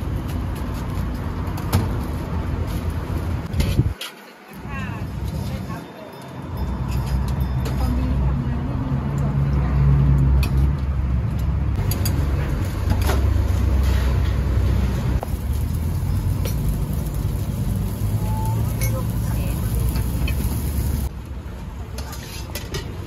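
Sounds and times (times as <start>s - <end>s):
low rumble of busy street stall: 0.0s - 23.0s.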